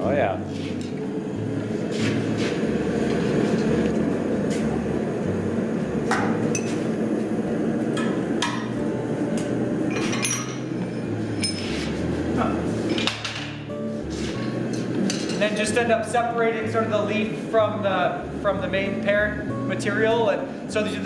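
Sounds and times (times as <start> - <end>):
gas forge burner rushing: 0.0 - 21.0
metal tools clinking on steel: 9.9 - 10.6.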